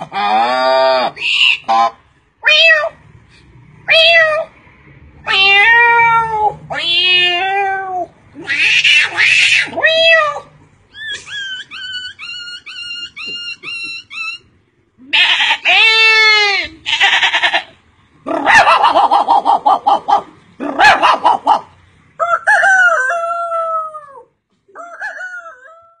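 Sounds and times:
man imitating farmyard animals: 0.0 - 2.9, 7.8 - 10.4, 15.0 - 25.8.

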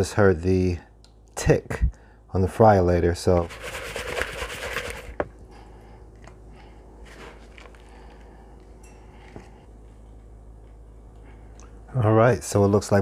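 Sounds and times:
low steady hum: 0.0 - 13.0
hands rubbing meat in flour: 3.4 - 5.2.

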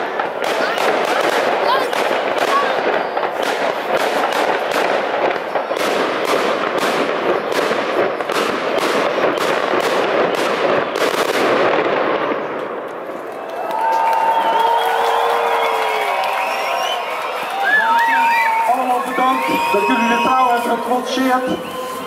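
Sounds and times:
fireworks bangs: 0.0 - 22.0.

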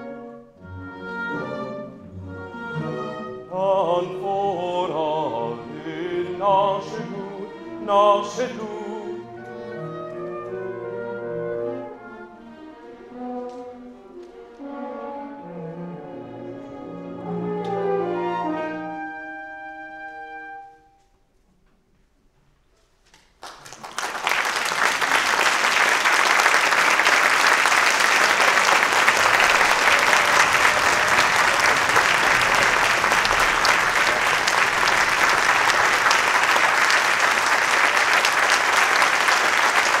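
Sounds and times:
audience applauding: 23.4 - 40.0
held orchestral chord: 27.9 - 37.2.

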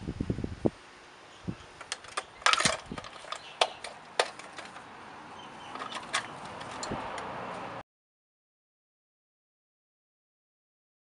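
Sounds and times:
metal tool clicking on engine cover: 1.8 - 4.8, 5.7 - 7.3.

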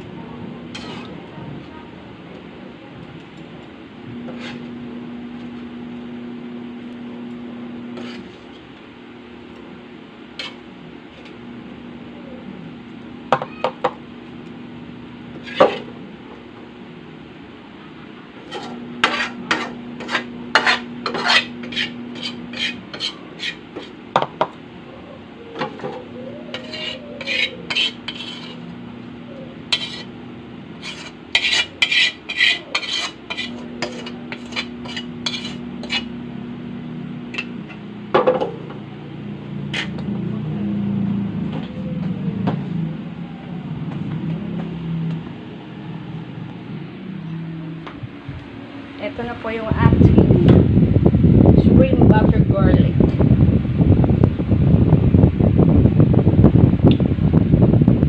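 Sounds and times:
metal ladle scraping a wok: 0.7 - 1.2, 4.3 - 4.7, 7.9 - 8.6, 10.4 - 10.6, 15.4 - 15.9, 18.4 - 24.0, 25.7 - 28.7, 29.7 - 30.2, 30.8 - 36.1, 39.7 - 40.0.

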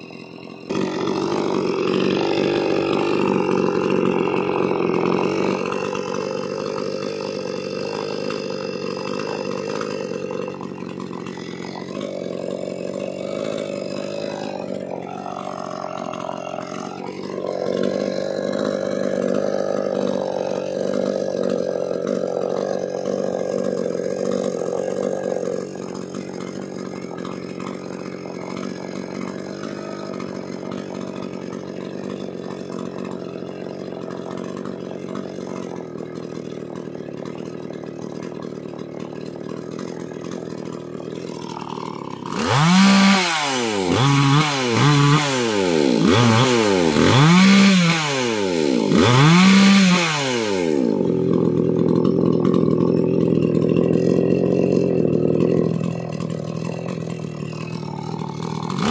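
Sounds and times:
chainsaw engine revving: 0.0 - 58.9.

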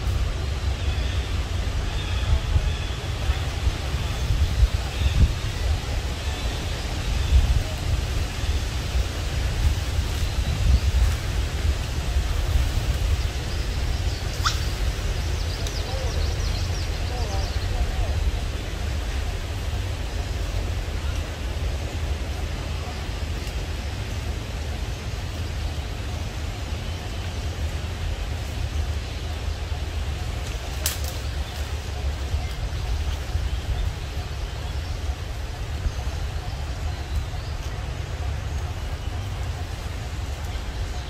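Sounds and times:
even hiss: 0.0 - 41.0.

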